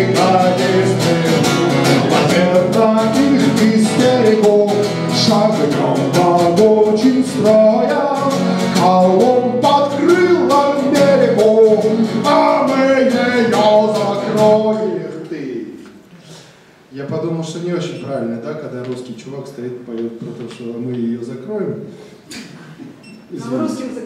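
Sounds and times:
strummed guitar: 0.0s - 15.1s
man singing: 0.0s - 15.5s.

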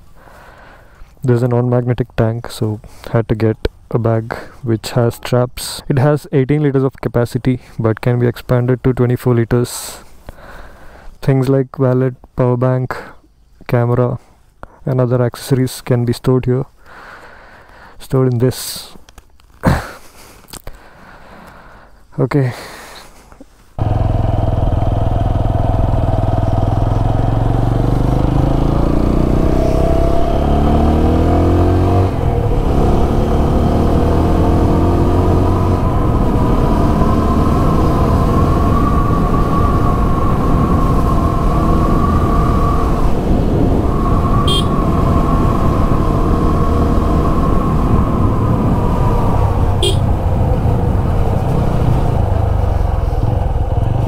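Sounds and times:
motorcycle engine accelerating: 23.8s - 54.0s.

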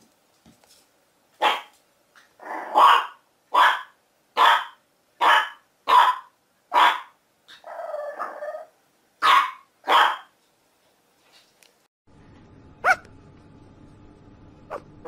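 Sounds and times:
dog barking: 1.4s - 1.7s, 2.6s - 8.4s, 9.2s - 10.3s, 12.8s - 13.1s, 14.7s - 14.9s
dog growling: 2.4s - 2.8s, 7.5s - 8.7s.

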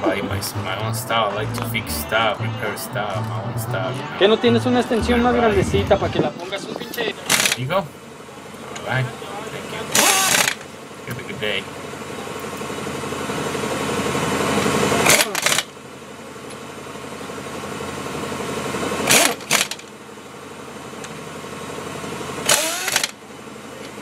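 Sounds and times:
impact wrench hammering: 7.2s - 7.7s, 9.9s - 10.7s, 15.0s - 15.7s, 19.0s - 19.9s, 22.4s - 23.2s
impact wrench whirring: 7.2s - 7.7s, 9.9s - 10.7s, 14.6s - 15.8s, 19.0s - 20.0s, 22.4s - 23.2s.

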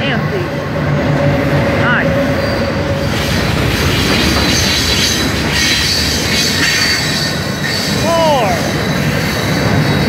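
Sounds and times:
steel wheels rumbling on rail: 0.0s - 10.0s
high wheel squeal: 2.3s - 10.0s.

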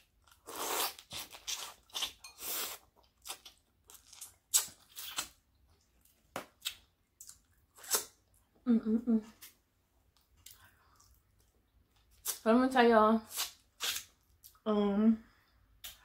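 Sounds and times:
crunching and chewing food: 0.0s - 8.6s.

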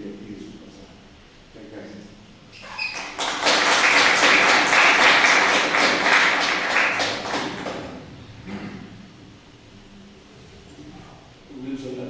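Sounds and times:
audience applauding: 2.6s - 8.1s.

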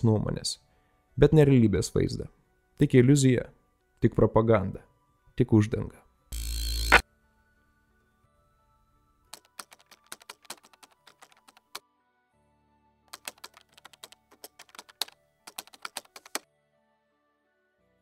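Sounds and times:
faint background music: 0.0s - 18.0s
keyboard key clicks: 9.4s - 11.8s, 13.2s - 16.4s.

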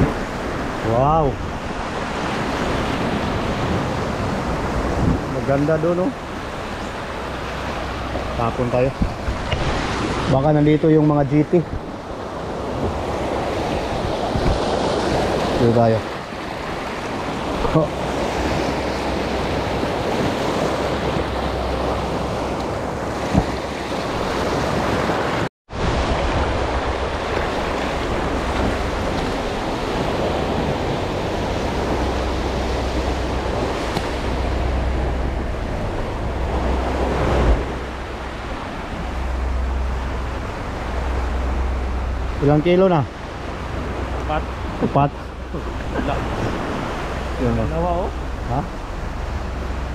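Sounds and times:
waves washing in: 0.0s - 49.9s
wind buffeting microphone: 0.0s - 49.9s.

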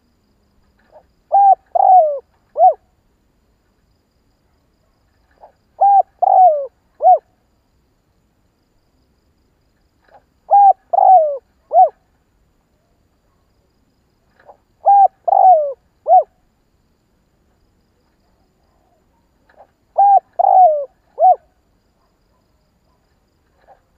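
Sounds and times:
dove cooing: 0.8s - 2.8s, 5.4s - 7.3s, 10.5s - 12.0s, 14.4s - 16.3s, 19.5s - 21.6s.

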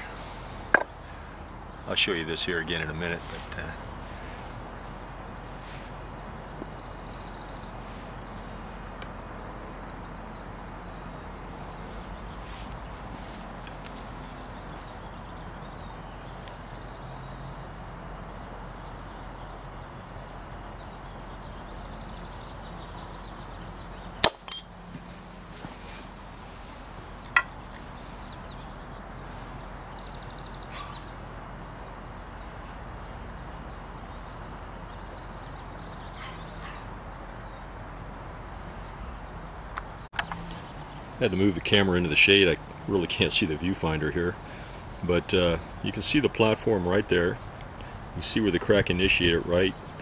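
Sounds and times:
stone blade cracking off: 24.2s - 24.7s.

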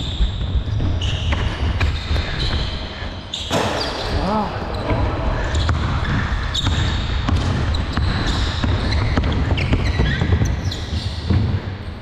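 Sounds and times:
basketball bouncing on court: 4.8s - 12.0s.

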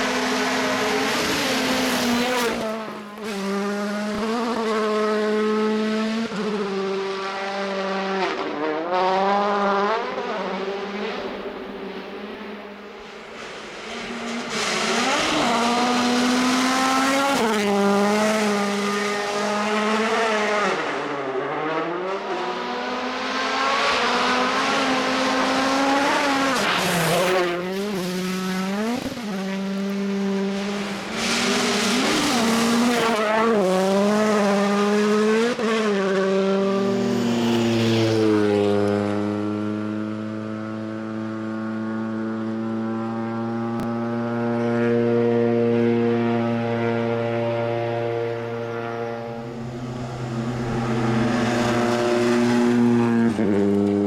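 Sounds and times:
rally car engine revving: 0.0s - 54.0s
rushing gravel and tyre noise: 11.4s - 19.4s, 25.8s - 34.8s, 48.7s - 54.0s.

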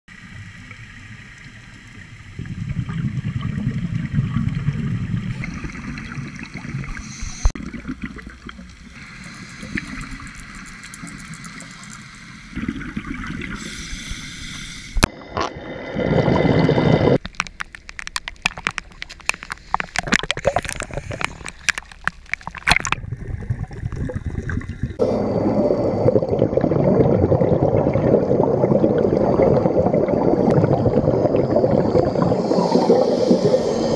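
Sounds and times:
bubbles gurgling underwater: 0.2s - 11.7s, 12.6s - 13.6s, 15.0s - 17.3s, 20.0s - 33.9s
divers breathing through regulators: 6.9s - 7.6s, 9.0s - 10.6s, 13.6s - 15.1s.

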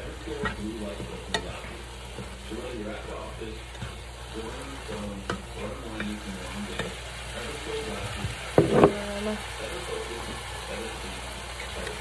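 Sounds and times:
meat frying in a skillet: 0.0s - 12.0s
utensil clicking against pan: 0.3s - 2.5s, 4.9s - 7.0s.

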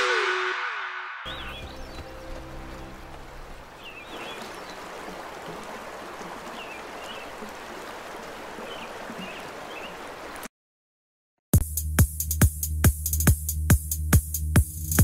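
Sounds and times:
river water rushing: 1.3s - 10.5s.

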